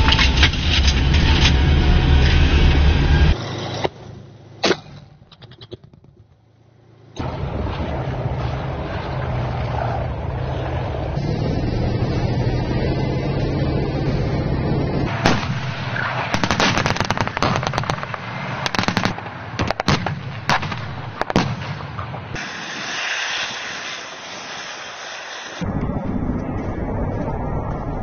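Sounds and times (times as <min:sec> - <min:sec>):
low vehicle engine rumble: 0:00.0 - 0:22.4, 0:24.2 - 0:28.0
steady rushing noise: 0:07.2 - 0:28.0
artillery shots and blasts: 0:15.1 - 0:25.2.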